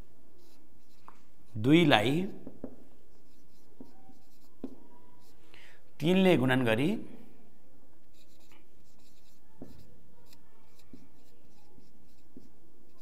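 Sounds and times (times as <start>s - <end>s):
marker squeaking on whiteboard: 0.4s - 5.4s, 8.0s - 13.0s.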